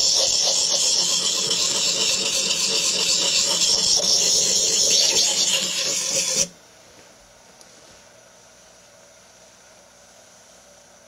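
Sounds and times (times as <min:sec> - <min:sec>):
knife scraping on whetstone: 0:00.0 - 0:06.5.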